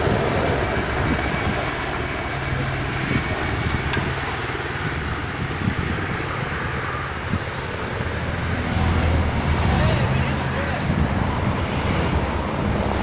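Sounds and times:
bicycle tyres and freewheels whirring: 0.0 - 13.0
low engine hum: 0.0 - 13.0.

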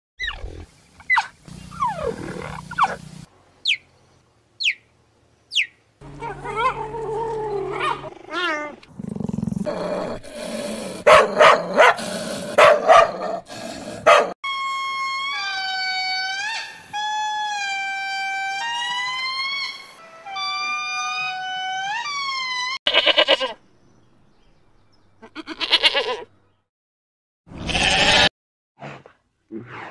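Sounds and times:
wavering howl-like calls: 1.2 - 3.0
cheetah chirps: 3.6 - 3.9
dog barking: 11.0 - 13.4, 14.0 - 14.4.

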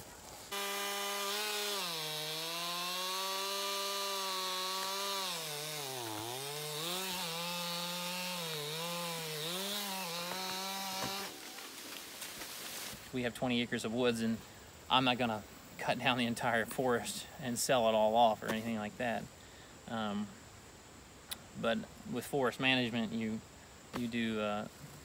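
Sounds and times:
chainsaw cutting wood: 0.5 - 13.0.

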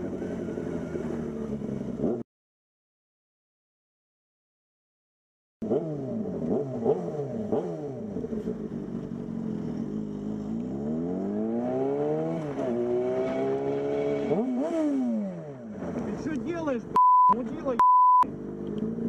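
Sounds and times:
car engine accelerating: 5.6 - 19.0.

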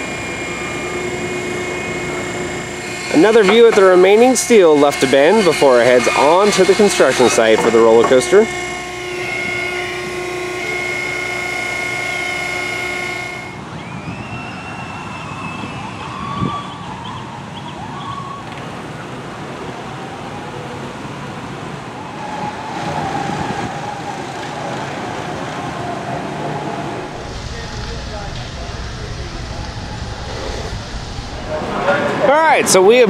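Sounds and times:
faint wavering tones: 0.0 - 13.6
machine motor whine: 0.0 - 15.1, 22.7 - 33.0
construction site noise: 0.0 - 33.0.

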